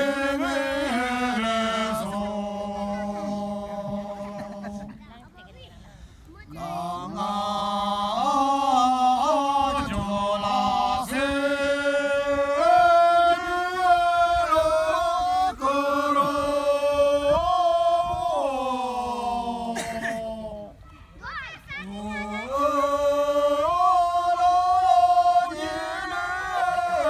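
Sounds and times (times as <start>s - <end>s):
group chanting in unison: 0.0s - 4.9s, 6.5s - 20.8s, 21.8s - 27.0s.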